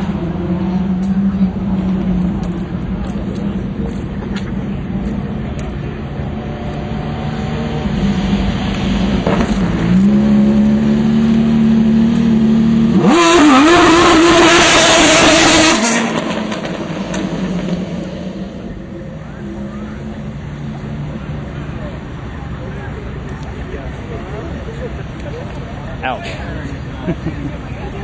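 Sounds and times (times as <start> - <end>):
race car engine passing: 6.1 - 23.0.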